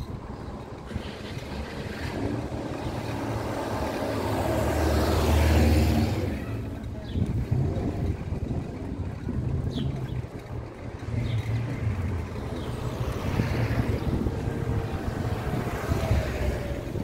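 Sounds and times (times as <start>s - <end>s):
vehicle passing by: 0.6s - 17.0s.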